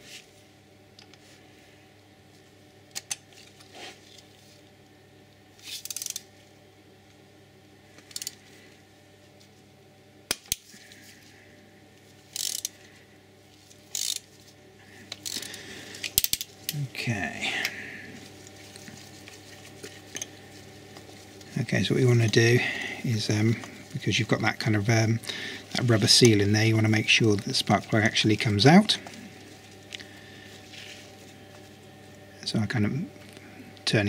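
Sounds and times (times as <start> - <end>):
ratchet wrench clicking: 5.8 - 6.2, 8.1 - 8.4, 12.3 - 12.7, 13.9 - 14.2, 16.2 - 16.5.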